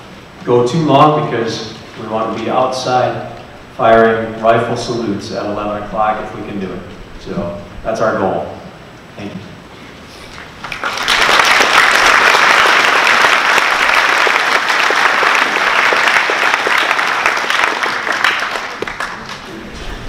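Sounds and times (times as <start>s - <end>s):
audience clapping: 10.3s - 20.0s.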